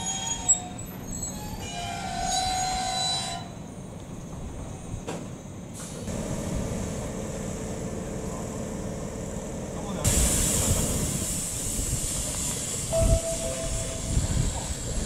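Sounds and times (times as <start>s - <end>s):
train wheels squealing: 0.0s - 5.2s, 12.2s - 15.0s.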